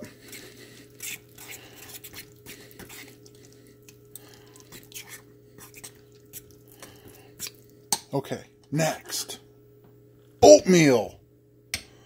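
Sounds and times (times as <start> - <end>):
fork stirring grits in saucepan: 0.0 - 7.7.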